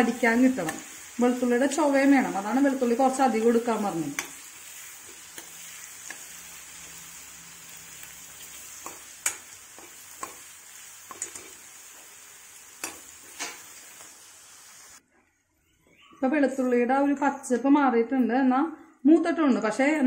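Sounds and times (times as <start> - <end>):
garlic sizzling in hot oil: 0.0 - 15.0.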